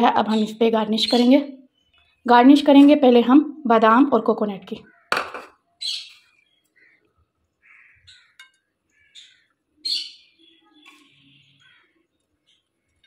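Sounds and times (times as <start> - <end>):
faint crow caws: 4.8 - 5.5, 6.5 - 9.6, 11.3 - 12.1.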